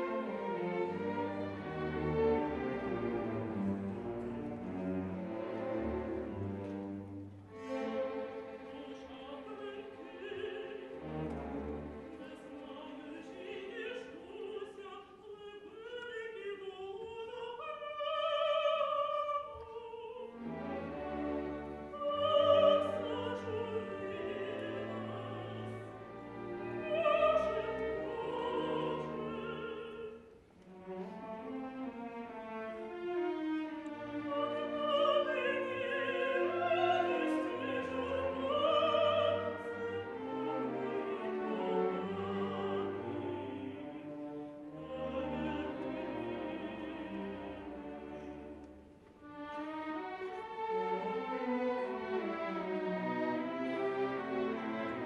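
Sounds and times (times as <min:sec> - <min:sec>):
orchestra with strings: 0:00.0 - 0:55.0
woman singing opera: 0:08.6 - 0:11.4, 0:12.1 - 0:20.8, 0:21.9 - 0:30.4, 0:33.9 - 0:48.4.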